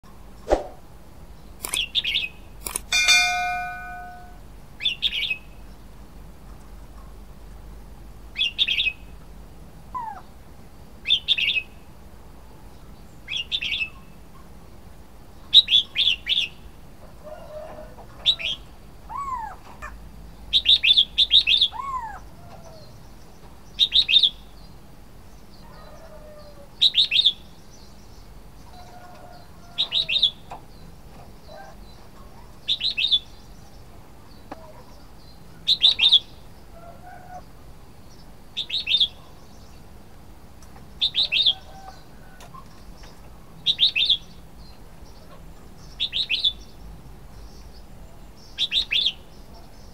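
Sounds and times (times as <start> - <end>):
bulbul singing: 1.4 - 5.5.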